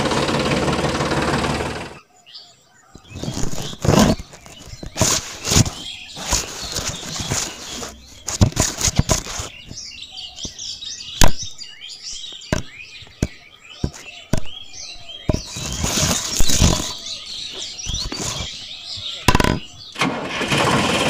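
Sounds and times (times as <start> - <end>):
small birds chirping: 1.4 - 20.0
noisy rustle: 3.1 - 9.9, 15.4 - 19.1.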